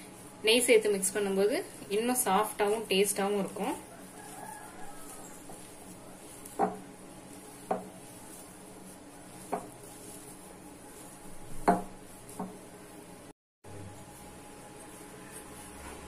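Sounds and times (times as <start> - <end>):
hand knocking glass bowl: 11.6 - 12.6.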